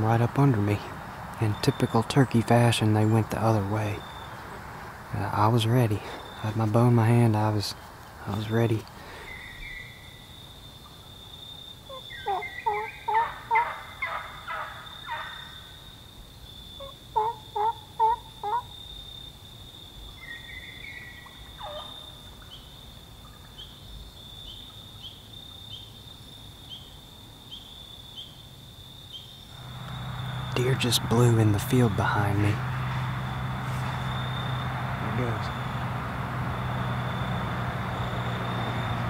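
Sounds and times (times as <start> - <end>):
wild turkeys calling: 0.0 - 11.0, 11.9 - 15.7, 16.8 - 19.0, 20.1 - 23.8, 29.5 - 39.0.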